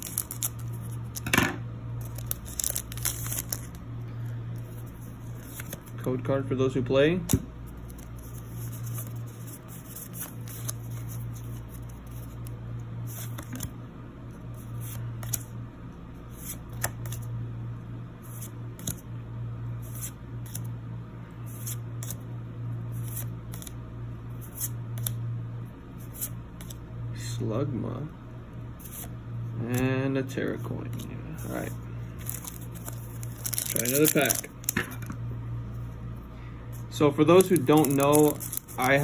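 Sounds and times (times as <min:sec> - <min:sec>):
steady low hum: 0:00.0 - 0:39.0
trading cards sliding: 0:02.0 - 0:03.8, 0:30.9 - 0:34.8, 0:36.7 - 0:39.0.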